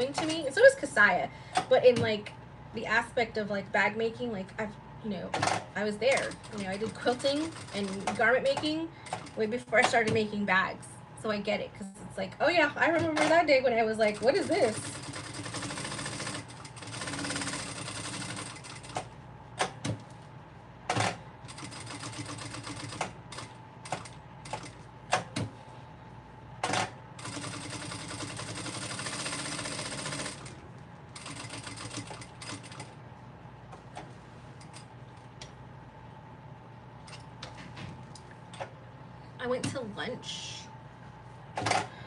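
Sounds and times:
sewing machine stitching: 14.1 - 19.0, 26.7 - 30.6.

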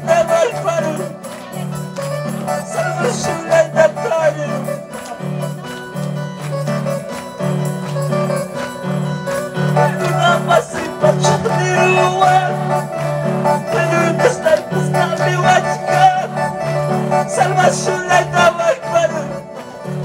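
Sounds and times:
person singing: 0.0 - 8.8, 9.4 - 20.0
live worship band music: 0.0 - 20.0
repeating bass line: 9.6 - 20.0.

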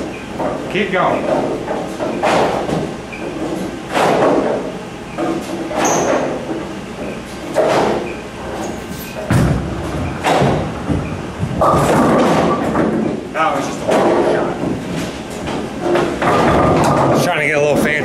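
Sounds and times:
sharp knocks and clatters: 0.3 - 18.0
bowling ball rolling on lane: 9.3 - 13.3.

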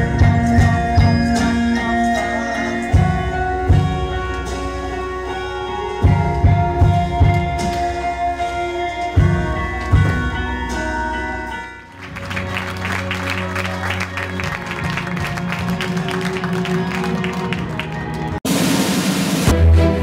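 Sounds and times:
theatre music with drum hits: 6.0 - 8.4, 9.2 - 11.1
audience applause: 11.9 - 18.4.

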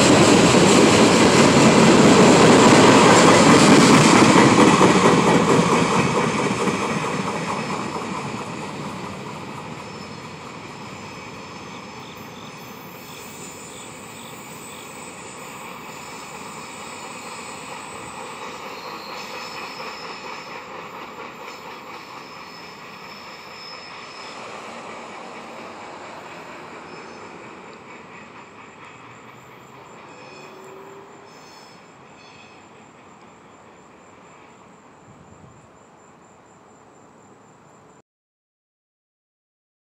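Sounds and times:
freight train wheels rumbling: 0.0 - 35.9
crickets chirping: 0.0 - 38.0
high wheel squeals: 9.6 - 32.9.

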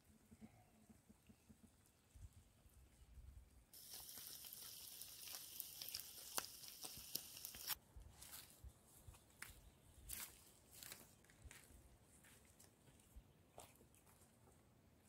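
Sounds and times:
food sizzling on embers: 3.8 - 7.8
sharp crackles: 3.8 - 7.8.

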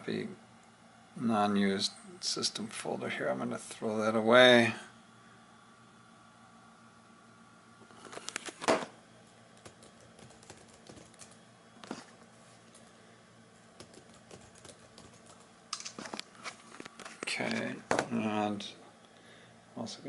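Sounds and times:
typing on keyboard: 9.6 - 11.4, 13.8 - 16.0.

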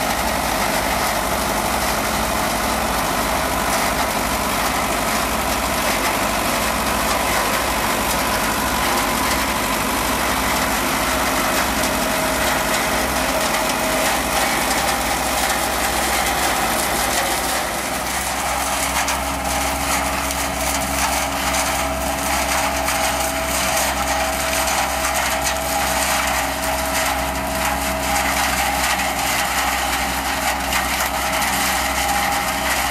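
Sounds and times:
tractor engine droning: 0.0 - 32.9
harvester whine: 0.1 - 29.1.

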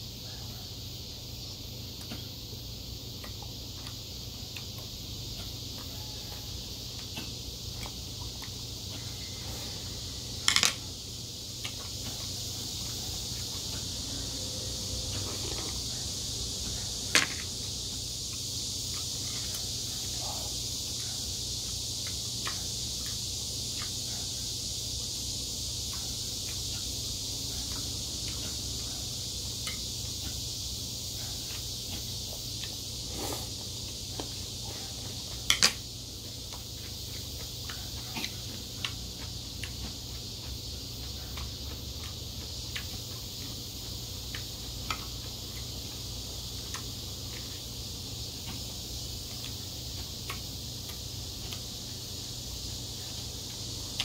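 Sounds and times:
steady high hiss: 0.0 - 54.0
faint chewing: 36.2 - 47.6.

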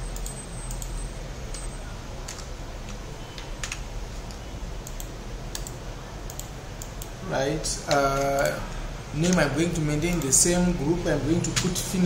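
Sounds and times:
low background hum: 0.0 - 12.0
keyboard keys clicking: 1.5 - 7.1.

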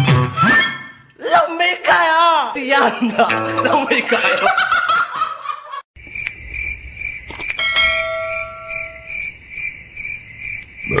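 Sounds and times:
cricket chirping: 6.0 - 11.0
bell ding: 7.6 - 9.1.

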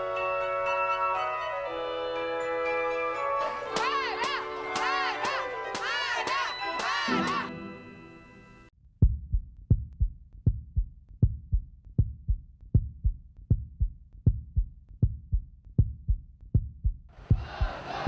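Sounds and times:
choir music: 0.0 - 8.7, 17.4 - 18.0
heartbeat thumps: 9.0 - 18.0.

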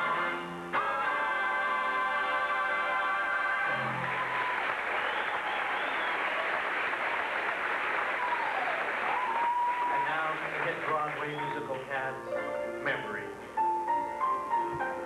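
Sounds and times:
audience applauding: 1.4 - 11.9.

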